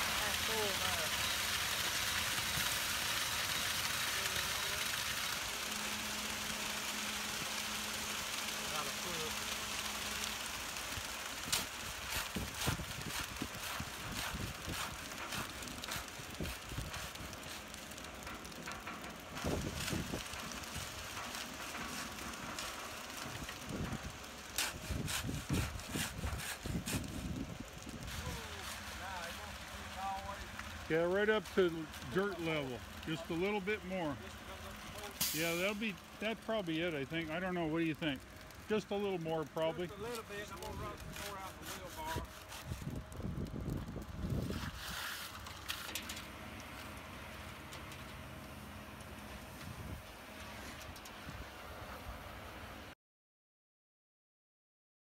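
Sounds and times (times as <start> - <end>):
wet concrete pouring: 0.0 - 52.9
shovel scraping concrete: 24.6 - 27.4, 40.1 - 42.9, 44.4 - 46.3.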